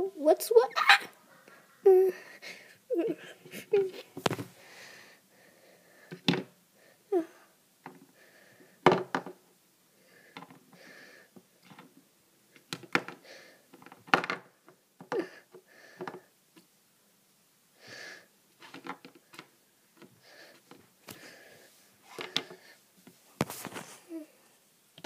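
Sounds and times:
soft rustling: 20.4 - 24.6.

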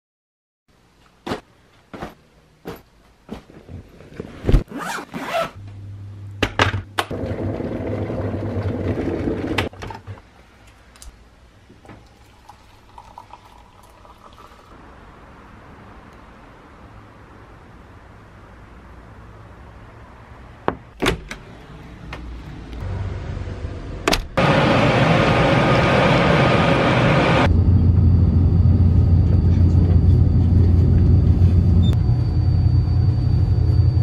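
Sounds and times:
zipper pulls scraping: 4.5 - 5.6
electric kettle heating water: 11.8 - 14.8.

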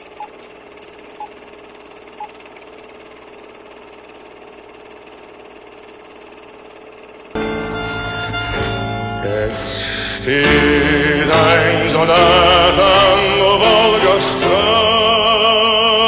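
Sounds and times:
film projector whirring: 0.0 - 7.4
music: 7.4 - 16.0.

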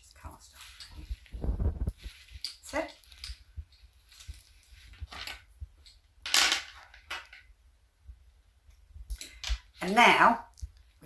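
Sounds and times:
soft rustling of thread: 0.0 - 6.2.

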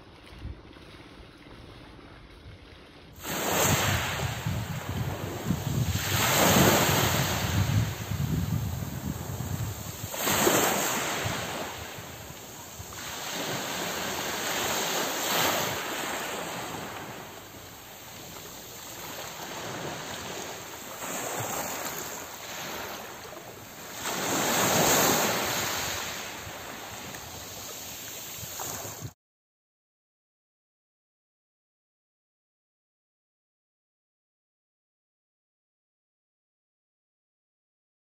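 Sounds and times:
wind on microphone: 0.0 - 29.2
waves washing onto pebbles: 3.1 - 29.2.

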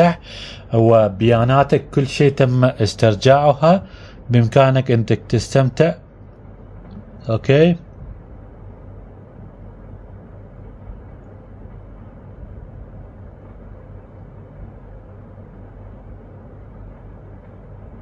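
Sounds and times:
low background rumble and hum: 0.0 - 18.0.

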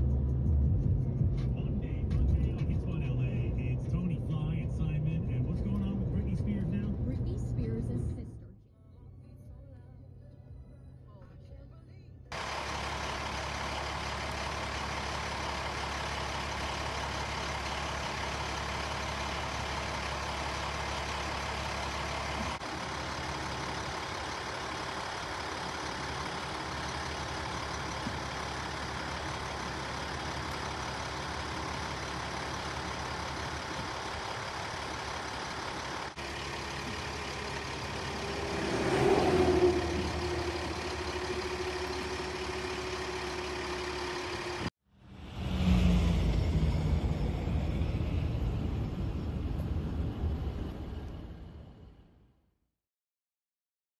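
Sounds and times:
diesel engine idling: 0.0 - 52.2
vehicle passing: 36.2 - 51.9.

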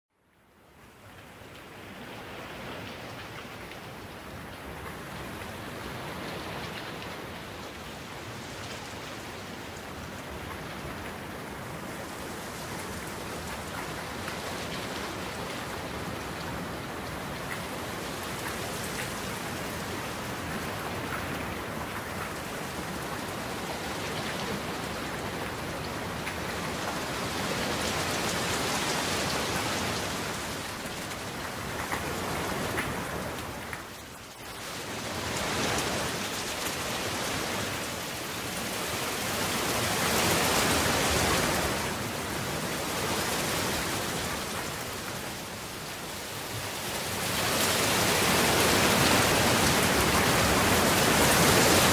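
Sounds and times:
steady rain: 0.1 - 51.9.

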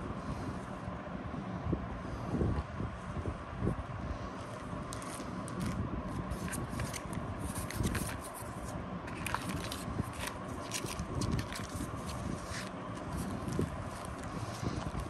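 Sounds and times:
steady background hum: 0.0 - 15.0
paper rustling: 4.5 - 15.0.

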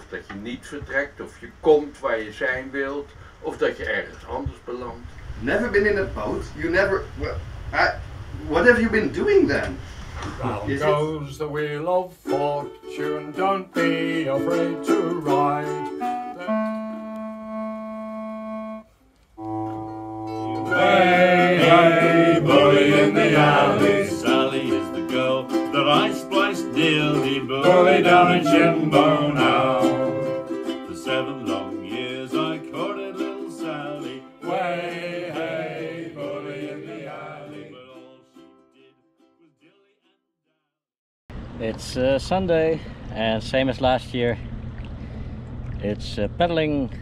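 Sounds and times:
group singing: 10.7 - 16.6, 20.4 - 38.4
strummed ukuleles and mandolin: 12.1 - 17.0, 19.4 - 38.8.

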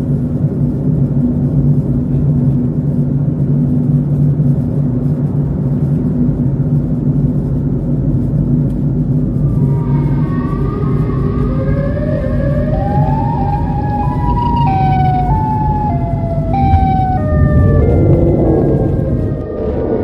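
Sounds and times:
car driving rumble: 0.0 - 20.0
siren wailing: 9.1 - 20.0.

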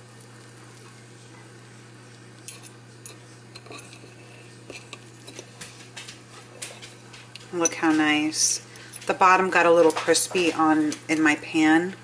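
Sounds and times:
steady low hum: 0.0 - 12.0
knife and fork scraping plate: 2.4 - 6.9.

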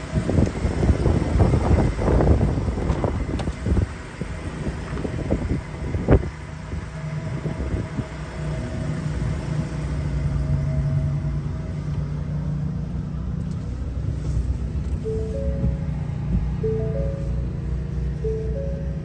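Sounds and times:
faint higher tone: 15.0 - 19.0.

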